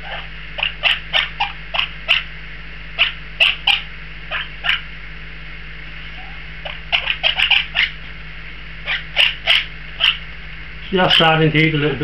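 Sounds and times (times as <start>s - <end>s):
parakeet begging calls: 0.0s - 2.4s, 3.0s - 4.9s, 6.0s - 8.2s, 8.8s - 10.3s, 10.9s - 11.9s.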